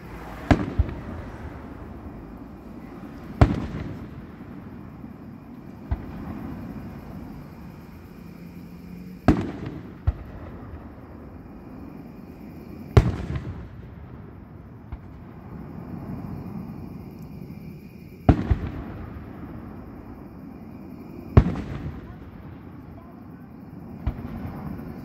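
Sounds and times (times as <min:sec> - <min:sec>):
fireworks bangs with rumbling echo: 0:00.0 - 0:08.2, 0:09.2 - 0:16.8, 0:18.2 - 0:25.0
small firework pops: 0:00.3 - 0:01.4, 0:03.2 - 0:04.6, 0:05.5 - 0:06.4, 0:09.2 - 0:10.9, 0:12.9 - 0:14.0, 0:14.8 - 0:15.3, 0:18.2 - 0:19.4, 0:21.3 - 0:23.2, 0:24.0 - 0:25.0.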